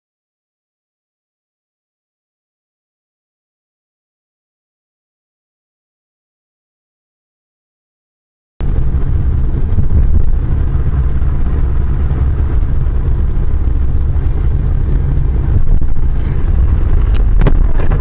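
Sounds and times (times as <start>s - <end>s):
car driving on snowy road: 8.6s - 18.0s.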